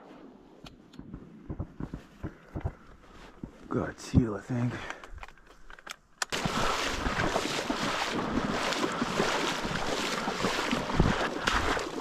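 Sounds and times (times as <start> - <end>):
sloshing through shallow water: 6.3 - 12.0.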